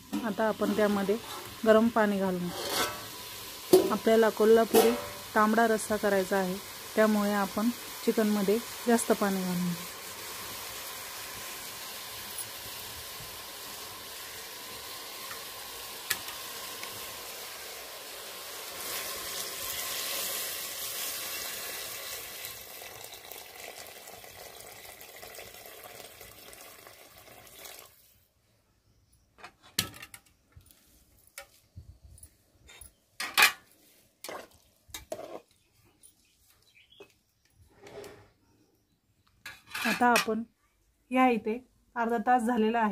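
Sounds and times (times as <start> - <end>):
chicken sizzling: 0.0 - 28.3
water poured into pot: 9.8 - 28.1.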